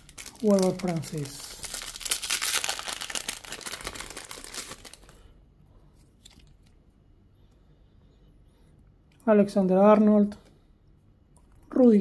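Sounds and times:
foil pack tearing and crinkling: 0.0 - 5.1.

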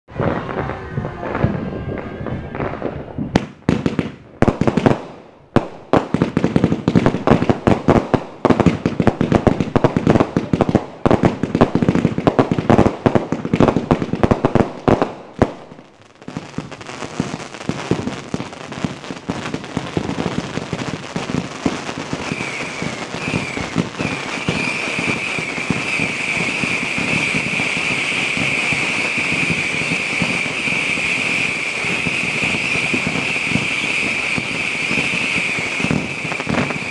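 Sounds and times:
fireworks crackling pops: 0.1 - 36.9
firework fountain hissing: 19.1 - 36.9
shrill whistle: 22.3 - 36.9.

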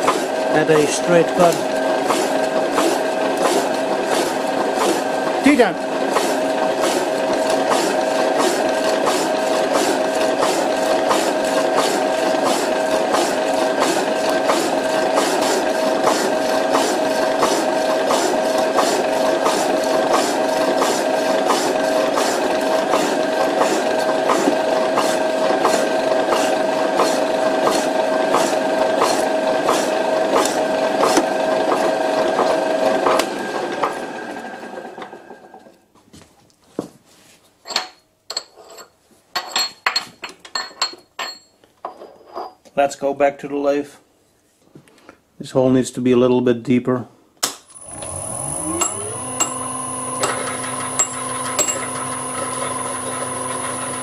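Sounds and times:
power hacksaw motor hum: 0.0 - 35.6, 47.7 - 54.0.

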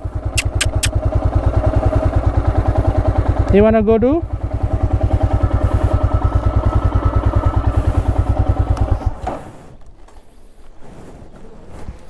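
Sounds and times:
motorcycle engine idling: 0.0 - 9.5.

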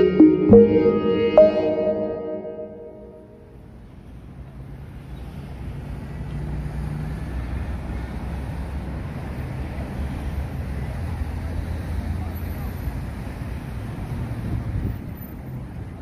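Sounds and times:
low rumble of traffic: 3.8 - 16.0.

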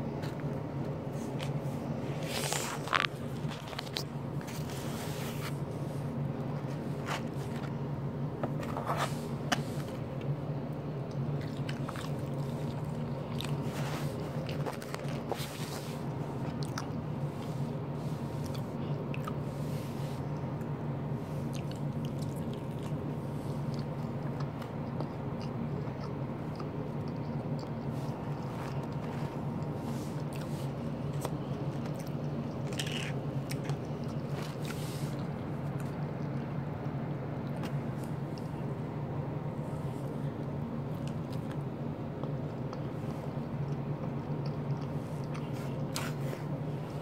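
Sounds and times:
low machine hum: 0.0 - 47.0
foam containers crunching: 2.2 - 5.8, 11.4 - 16.6.

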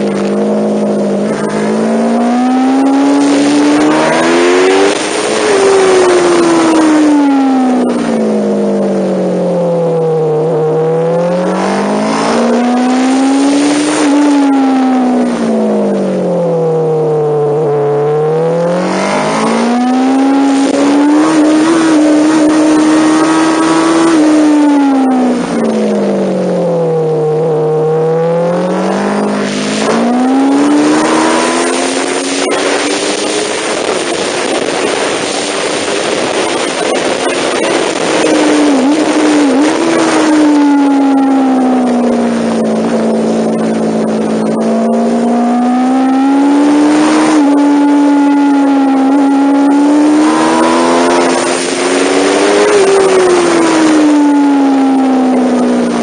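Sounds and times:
motorcycle engine revving: 0.0 - 56.0
loud wind rush: 17.7 - 55.0.

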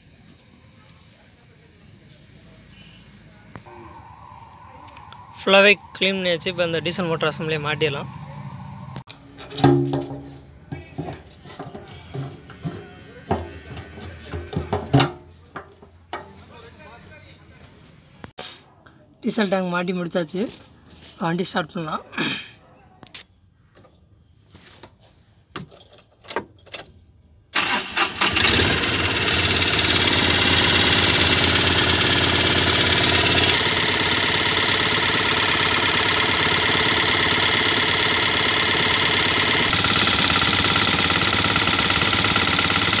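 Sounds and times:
diesel engine starting and idling: 27.6 - 43.0.

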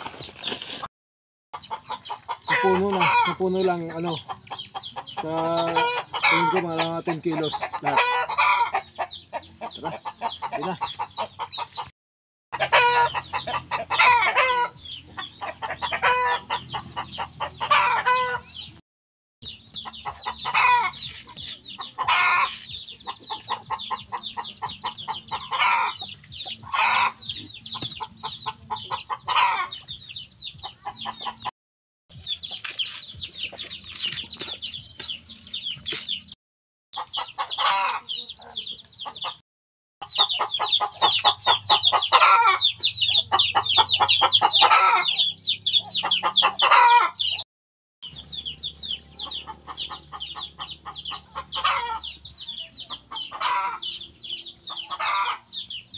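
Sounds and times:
chickens clucking: 1.6 - 11.9, 12.6 - 18.8, 19.4 - 31.5, 32.2 - 36.4, 37.0 - 39.4, 40.0 - 47.4, 48.1 - 55.9
high-pitched chick cheeping: 1.6 - 11.9, 19.4 - 31.5, 32.1 - 36.4, 37.0 - 39.4, 40.0 - 47.4, 48.0 - 55.9.

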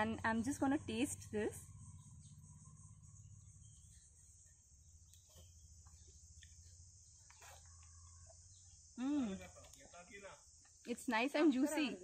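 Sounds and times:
low hum: 0.0 - 9.3
insects chirring: 0.0 - 12.0.

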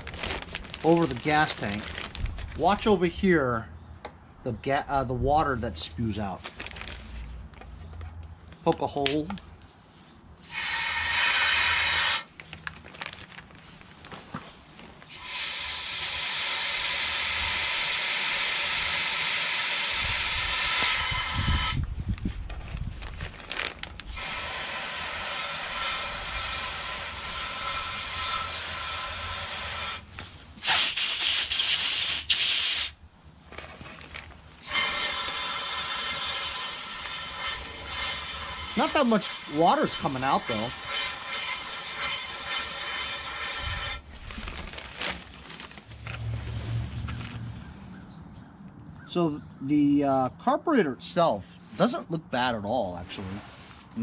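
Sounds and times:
air blow gun hissing: 10.5 - 12.3, 15.1 - 21.8, 24.1 - 33.0, 34.6 - 44.0.

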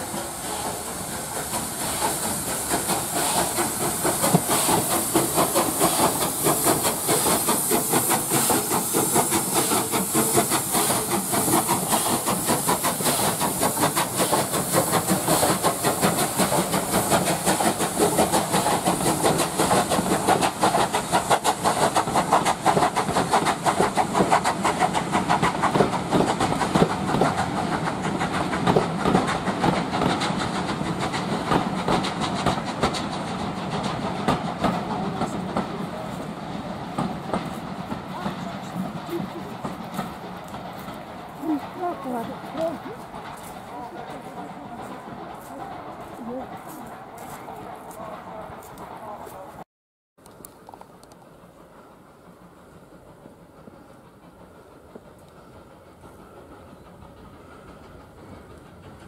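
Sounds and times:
steam hissing: 0.0 - 49.6, 51.2 - 59.0
steam locomotive exhaust beats: 0.0 - 49.6, 50.2 - 59.0
wheels clicking over rail joints: 1.4 - 36.0.

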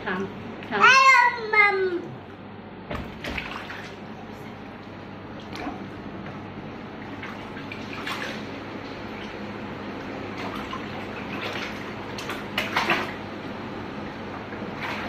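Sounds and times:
hand slapping water in bucket: 10.4 - 13.2.

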